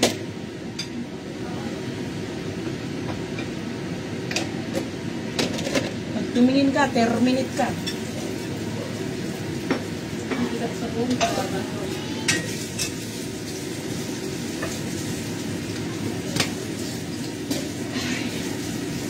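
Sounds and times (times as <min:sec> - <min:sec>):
food sizzling in a pan: 0:06.2 - 0:19.0
metal utensil clanking on pan: 0:11.1 - 0:11.5.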